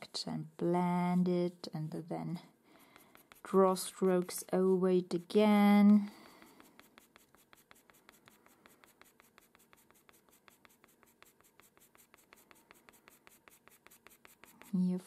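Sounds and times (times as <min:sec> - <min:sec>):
pencil scratching on paper: 0:02.7 - 0:04.9, 0:05.9 - 0:15.0.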